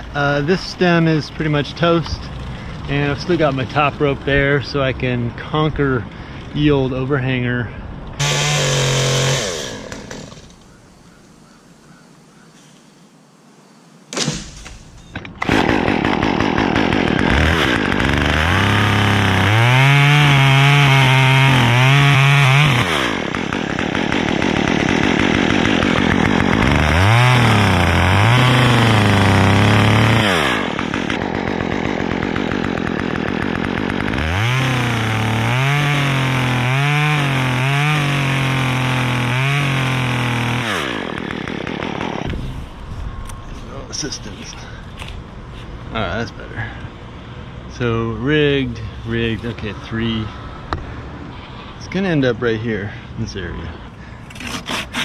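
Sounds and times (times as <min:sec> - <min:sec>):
chainsaw idling and revving: 0:00.0 - 0:07.1, 0:08.2 - 0:10.6, 0:15.4 - 0:42.6.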